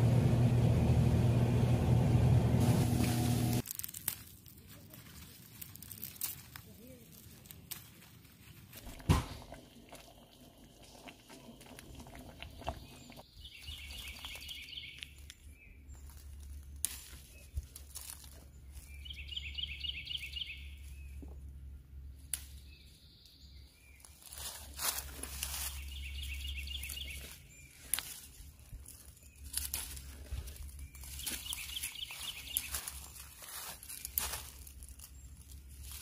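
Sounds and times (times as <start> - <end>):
leaves and vines rustling: 2.6 - 11.9, 12.8 - 21.2, 23.8 - 36.0
songbird singing: 9.6 - 36.0.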